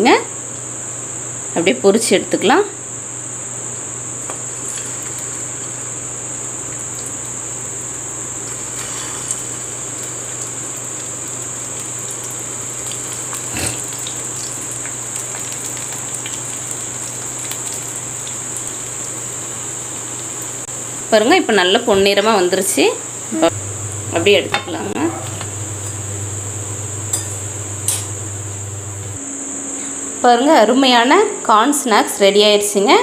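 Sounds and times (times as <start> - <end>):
food deep-frying in oil: 4.2 - 29.2.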